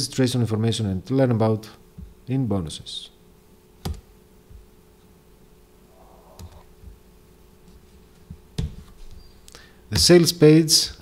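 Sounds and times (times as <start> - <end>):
faint steady hum: 0.0 - 11.0
computer mouse clicking: 6.3 - 6.7.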